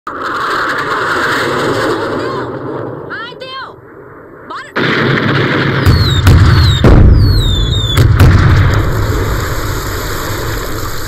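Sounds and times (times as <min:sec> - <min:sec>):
deep rumble: 0:03.8 - 0:11.0
heavy gunshots: 0:04.8 - 0:10.6
short falling whistle: 0:05.9 - 0:08.1.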